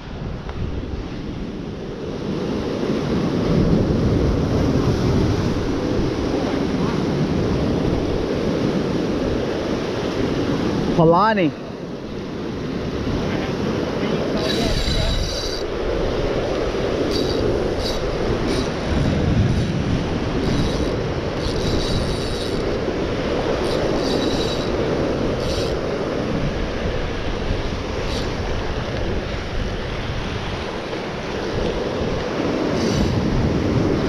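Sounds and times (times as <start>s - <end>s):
wind buffeting microphone: 0.0s - 11.0s, 11.8s - 34.0s
surf washing over rocks: 0.0s - 34.0s
fishing reel whirring: 14.2s - 29.0s, 32.0s - 33.2s.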